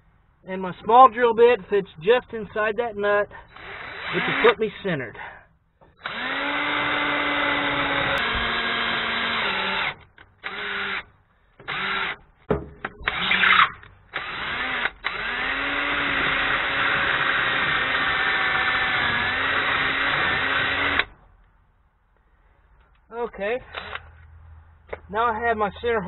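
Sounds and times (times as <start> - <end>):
cordless drill whining: 3.5 - 4.6, 5.8 - 12.2, 13.0 - 21.2, 23.7 - 24.0.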